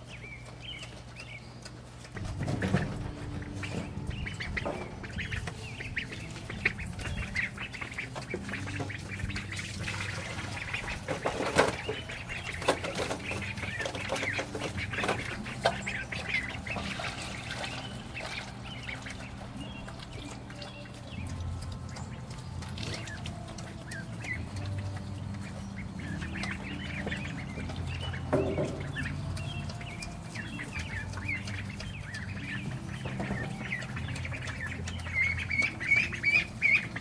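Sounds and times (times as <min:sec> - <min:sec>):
ducks calling: 0:00.0 - 0:37.0
knocks and clatter: 0:02.2 - 0:05.4.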